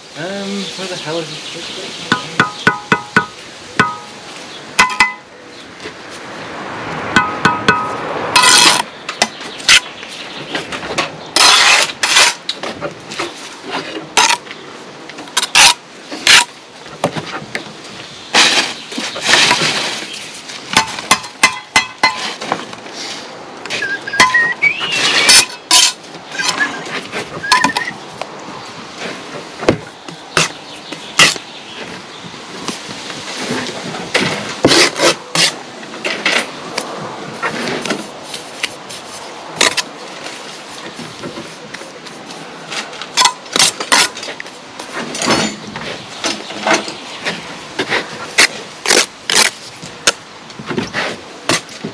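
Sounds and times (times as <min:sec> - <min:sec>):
trowel knocking on concrete blocks: 0:02.1 - 0:04.1, 0:04.8 - 0:05.3, 0:20.7 - 0:22.4.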